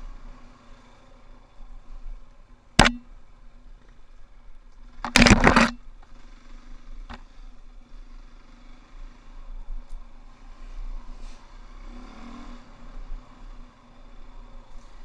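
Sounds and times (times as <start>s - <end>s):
muffled dirt bike engine hum: 0.0s - 15.0s
sharp knock: 2.8s - 3.1s
branches scraping across camera: 5.1s - 5.8s.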